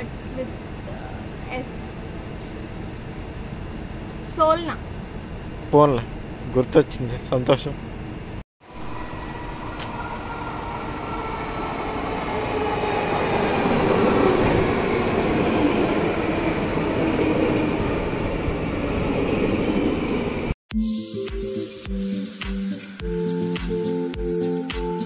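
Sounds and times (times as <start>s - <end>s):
train rumbling on rails: 8.6s - 20.6s.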